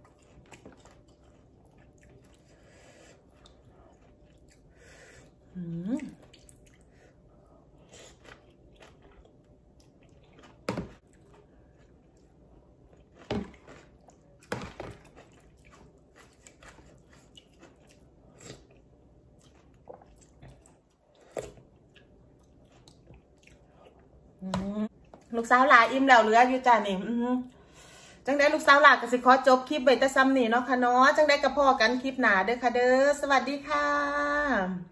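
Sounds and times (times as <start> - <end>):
person chewing: 0.0 - 24.2.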